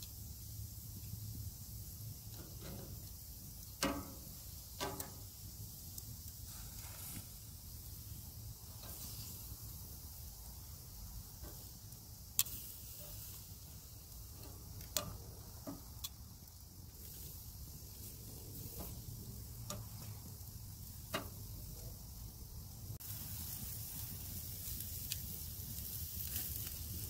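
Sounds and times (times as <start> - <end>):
meat sizzling: 0.0 - 27.0
metal tongs clicking on grate: 3.6 - 5.2, 12.4 - 13.1, 14.3 - 16.2, 19.6 - 20.0.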